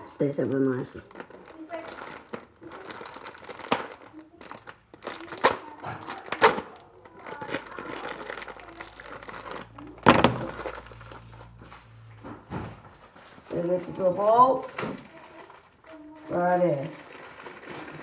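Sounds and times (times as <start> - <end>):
plastic packet crinkling: 0.3 - 11.6, 13.2 - 18.0.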